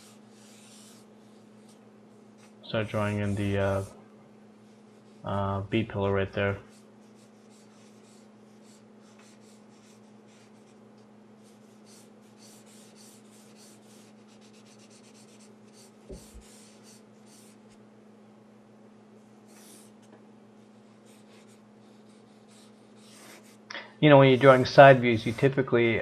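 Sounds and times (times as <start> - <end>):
marker scratching on paper: 0.0 - 1.8, 6.6 - 10.8, 11.4 - 17.8, 19.5 - 20.0, 20.6 - 23.6, 24.3 - 25.6.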